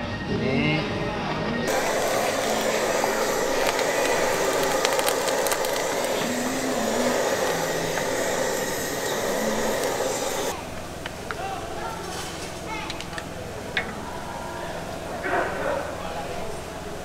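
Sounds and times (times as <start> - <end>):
gas torch flame hissing: 1.7 - 10.6
sizzling crackles: 1.7 - 11.3.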